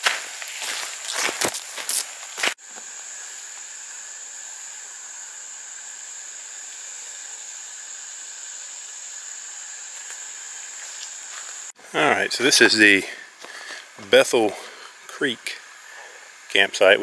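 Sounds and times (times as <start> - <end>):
footsteps on dirt trail: 0.0 - 3.7, 9.9 - 11.7, 13.4 - 13.8
high-pitched insect drone: 0.0 - 17.0.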